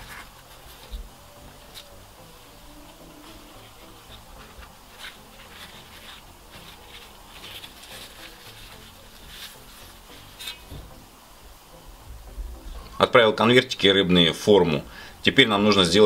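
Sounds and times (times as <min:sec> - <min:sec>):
flatbread rustling and crinkling: 0:02.7 - 0:10.9.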